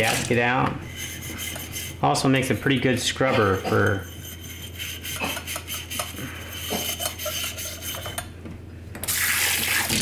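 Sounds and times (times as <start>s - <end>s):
metal scrubber scraping steel: 0.0s - 8.2s
faucet sprayer running water: 9.0s - 10.0s.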